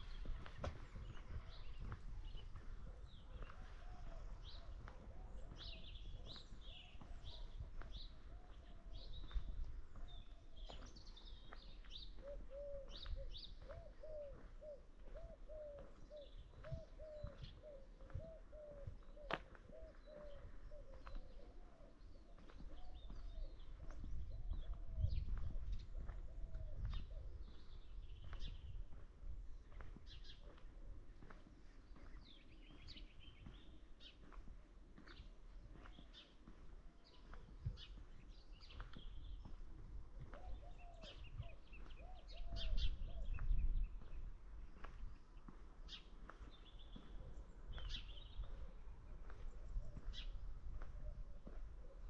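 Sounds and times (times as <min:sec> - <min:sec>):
birds chirping and twittering: 0:00.0 - 0:52.0.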